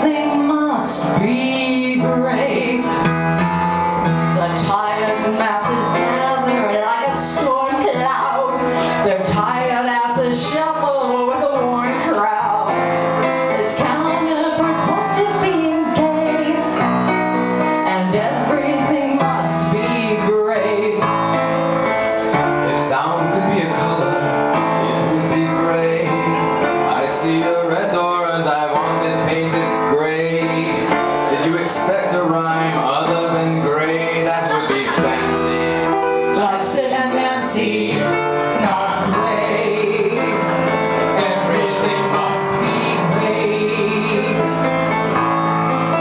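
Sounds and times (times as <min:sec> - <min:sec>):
person singing: 0:00.0 - 0:03.1, 0:13.5 - 0:16.9, 0:17.7 - 0:21.2, 0:22.7 - 0:44.7
live band playing: 0:00.0 - 0:46.0.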